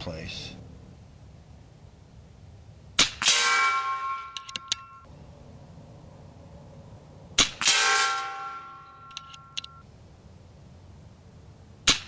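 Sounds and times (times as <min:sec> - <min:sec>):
pellet striking ringing steel target: 0:03.0 - 0:05.1, 0:07.4 - 0:09.8.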